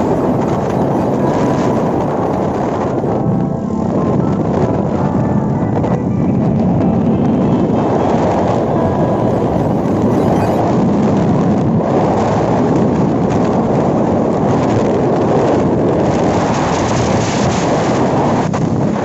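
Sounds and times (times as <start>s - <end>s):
road noise: 0.0s - 11.0s
wind buffeting microphone: 0.0s - 19.0s.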